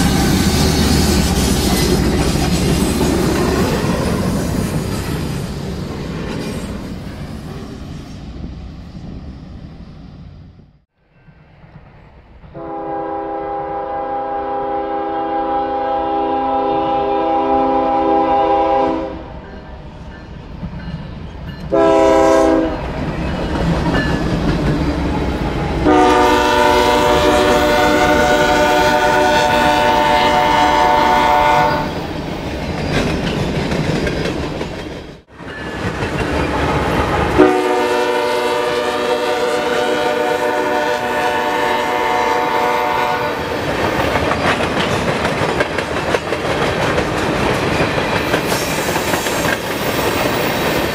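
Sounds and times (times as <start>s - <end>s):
train rumble and rail clatter: 0.0s - 50.9s
train air horn blasts: 12.6s - 19.3s, 21.7s - 22.8s, 25.8s - 32.0s, 37.4s - 43.6s.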